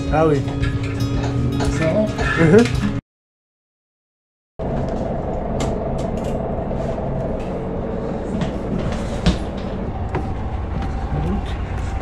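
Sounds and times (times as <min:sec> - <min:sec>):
bus engine and road rumble: 0:04.6 - 0:12.0
constant hum: 0:04.6 - 0:12.0.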